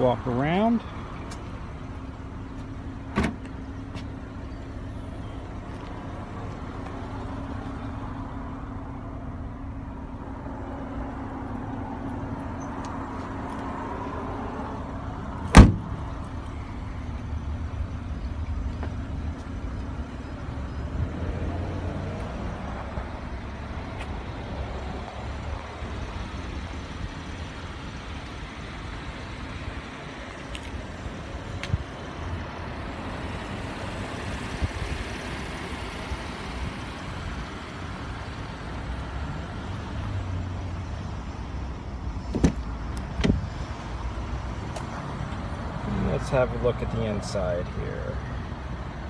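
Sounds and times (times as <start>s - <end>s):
car trunk latch click: 3.1s - 3.5s, 15.5s - 15.8s, 42.3s - 43.4s
car trunk lid thud: 3.1s - 3.5s, 15.5s - 15.9s, 42.3s - 42.6s.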